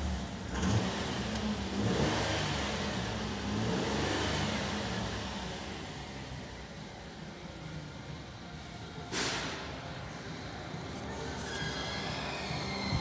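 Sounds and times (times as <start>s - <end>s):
car engine revving: 0.0s - 6.5s.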